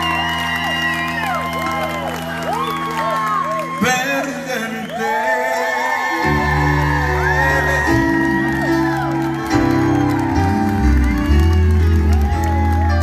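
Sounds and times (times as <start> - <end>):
person singing: 3.8 - 13.0
bass: 6.2 - 13.0.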